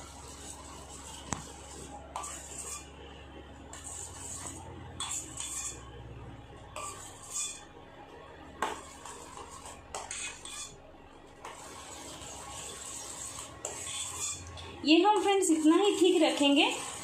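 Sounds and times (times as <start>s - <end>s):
spoon scraping a steel pan: 0.0s - 3.0s, 3.7s - 5.9s, 6.8s - 7.7s, 8.6s - 10.8s, 11.4s - 17.0s.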